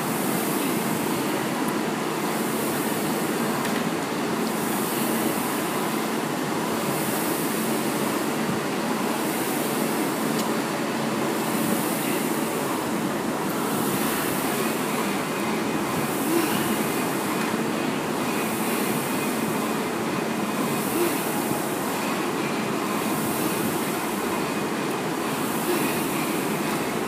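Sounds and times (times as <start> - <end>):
rowing machine flywheel whooshing: 11.3 - 27.0.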